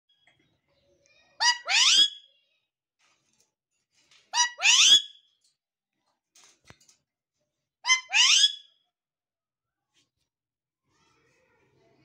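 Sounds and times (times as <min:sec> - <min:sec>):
parakeet squawking: 0:01.4 - 0:02.2, 0:04.4 - 0:05.1, 0:07.9 - 0:08.7.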